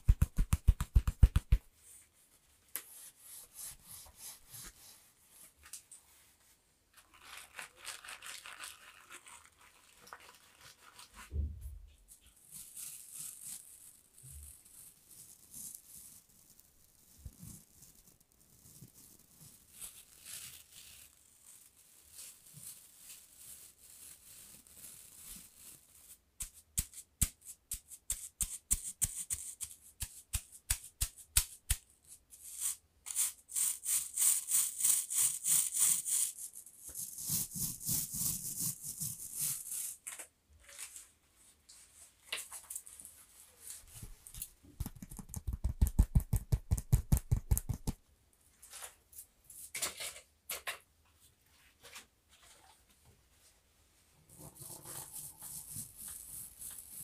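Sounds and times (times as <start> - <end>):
quick taps: 0.0 - 1.6, 44.8 - 48.0
bristle scratching: 2.8 - 5.5, 12.3 - 40.0, 54.3 - 57.0
deep loud thumps: 11.3 - 11.9
soft brushing: 40.8 - 45.3, 51.5 - 57.0.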